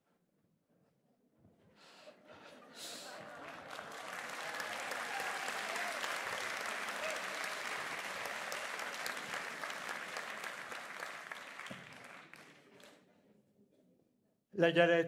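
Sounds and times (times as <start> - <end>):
audience applauding: 2.8 - 13.0.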